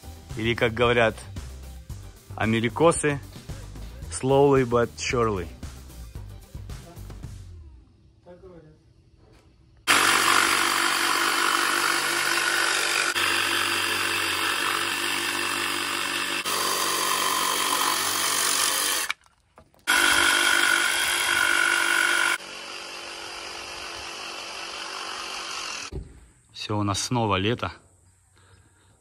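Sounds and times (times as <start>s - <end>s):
jigsaw cutting wood: 9.9s - 19.2s, 19.8s - 25.9s.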